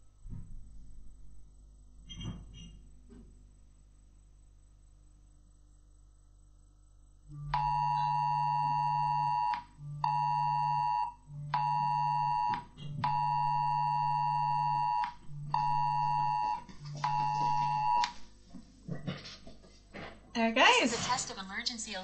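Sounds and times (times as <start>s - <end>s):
phone vibration buzz: 1.6s - 3.0s, 4.7s - 18.5s
two-tone phone alarm: 7.4s - 18.1s.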